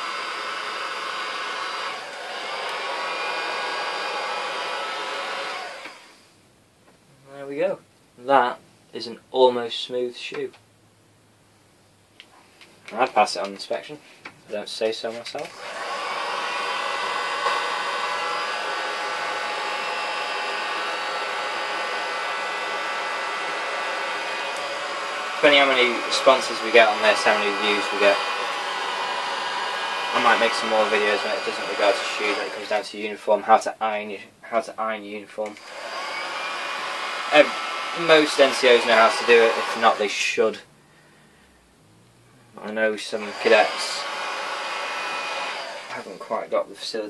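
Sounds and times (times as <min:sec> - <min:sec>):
heat gun blowing air: 0:00.0 - 0:06.2, 0:15.4 - 0:33.0, 0:35.6 - 0:40.4, 0:43.0 - 0:46.5.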